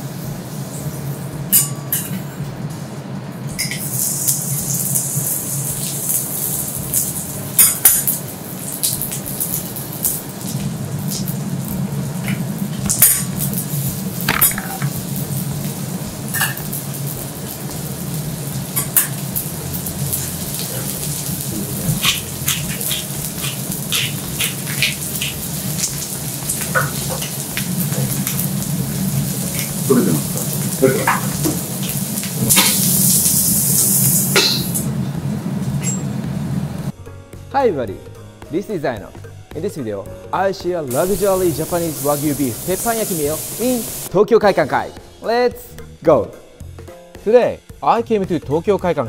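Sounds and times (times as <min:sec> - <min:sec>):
food sizzling on a griddle: 0:00.0 - 0:02.1, 0:03.5 - 0:35.0, 0:40.9 - 0:44.1
low hum: 0:10.4 - 0:36.9.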